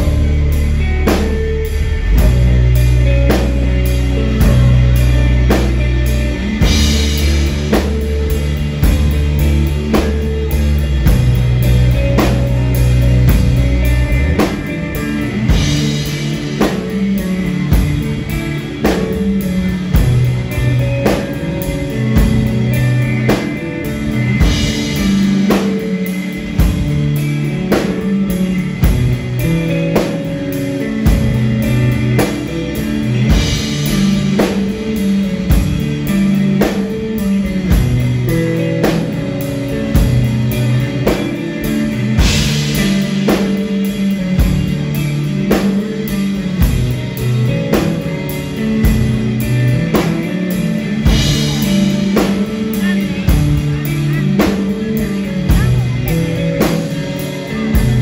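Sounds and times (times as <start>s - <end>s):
distorted electric guitar riff: 0.0s - 58.0s
rock band playing: 0.0s - 58.0s.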